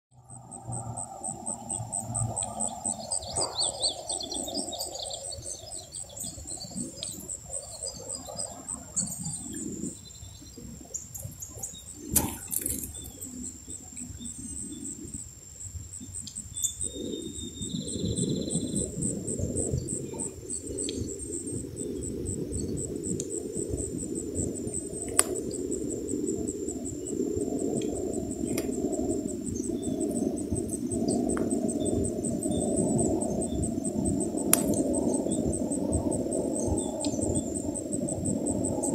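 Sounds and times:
insect chorus: 0.1 - 38.9
bird chirps: 1.2 - 15.0, 16.0 - 18.9.

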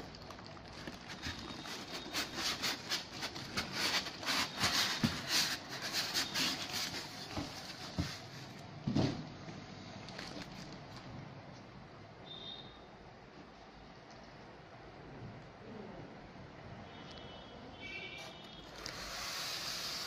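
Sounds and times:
packaging rustling and scraping: 0.0 - 9.2, 10.1 - 11.1.

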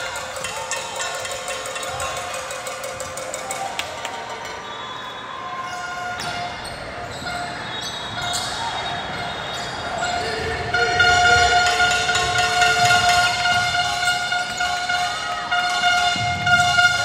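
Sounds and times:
shoe squeaks: 4.5 - 12.6
held horn-like tone: 10.0 - 17.0.

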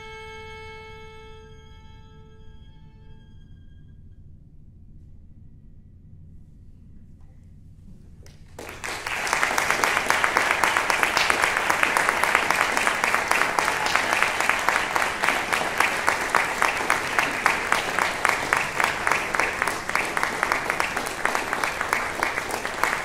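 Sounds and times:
audience applause: 8.6 - 23.0.

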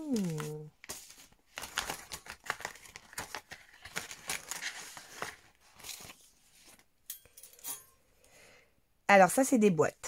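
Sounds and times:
plastic packaging crinkling: 0.0 - 6.8.

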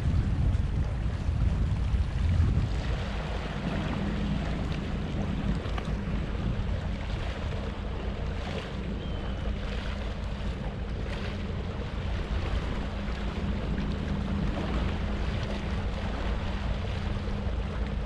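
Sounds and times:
choppy sea waves: 0.0 - 18.0
wind buffeting microphone: 0.0 - 18.0.

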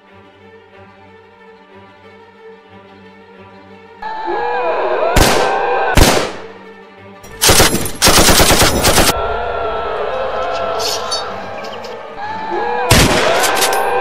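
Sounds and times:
background music: 0.0 - 14.0
single gunshots: 5.2 - 6.5, 12.9 - 13.6
automatic gunfire burst: 7.4 - 9.1.

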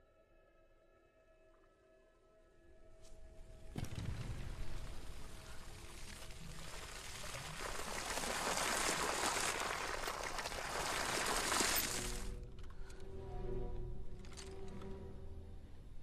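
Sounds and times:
water gushing from hose onto sand: 5.4 - 12.3.

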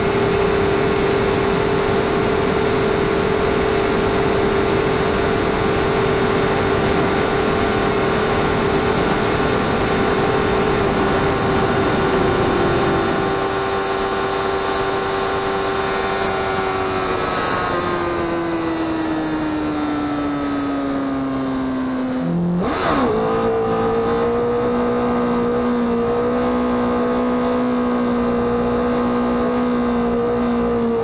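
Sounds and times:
heavy wind rush: 0.0 - 19.6
motorcycle engine at high revs: 0.0 - 31.0.

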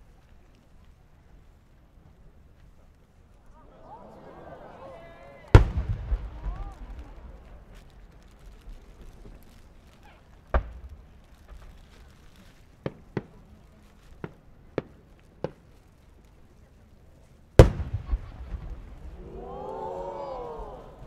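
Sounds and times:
crackle of small pops: 0.0 - 3.6, 5.5 - 21.0
distant fireworks bangs: 5.5 - 16.2, 17.6 - 19.6.

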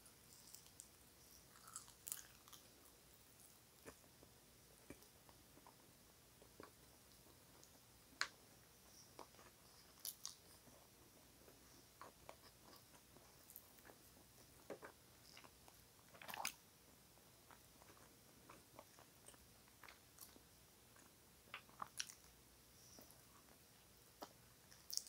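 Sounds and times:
crackle: 0.0 - 10.8, 24.2 - 25.0
person chewing food: 0.2 - 4.2, 9.0 - 16.6, 17.4 - 22.4, 24.2 - 25.0
soft mouth clicks and smacks: 24.2 - 25.0.

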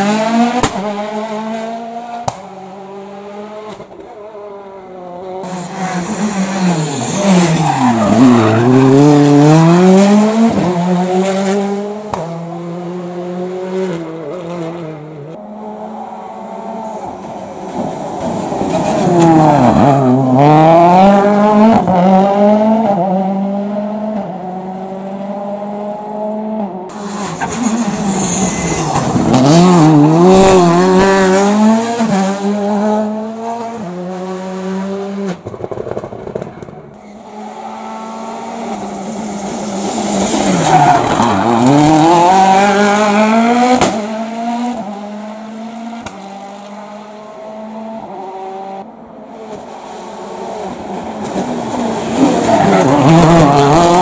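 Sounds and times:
rally car engines revving: 0.0 - 54.0
tyre squeal: 27.0 - 29.5.

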